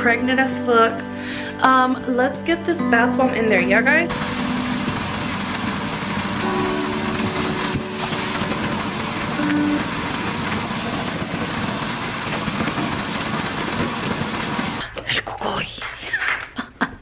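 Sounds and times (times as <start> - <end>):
faucet pouring water into tub: 4.1 - 14.8.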